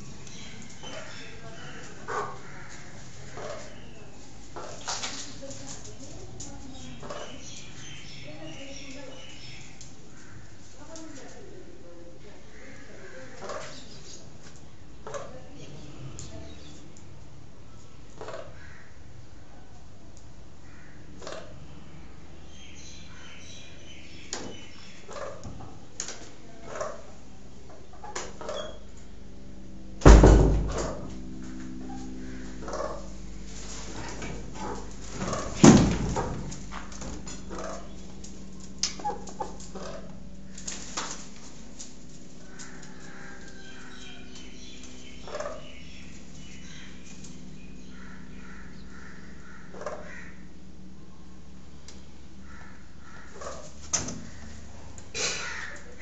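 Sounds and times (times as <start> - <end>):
hens squawking: 0.0 - 5.4, 12.4 - 14.3, 22.5 - 25.9, 32.0 - 40.8, 41.6 - 50.6, 52.3 - 56.0
peahen clucking calls: 0.0 - 5.5, 6.1 - 11.4, 12.4 - 14.4, 22.5 - 25.9, 31.8 - 40.6, 42.4 - 50.6
steady low hum: 0.0 - 56.0
loud thump: 30.0 - 31.2.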